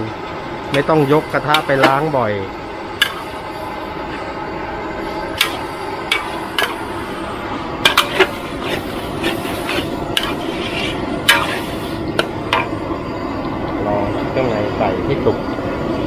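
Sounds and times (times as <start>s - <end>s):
metal spatula clanking on wok: 3.0s - 3.4s, 7.8s - 8.4s.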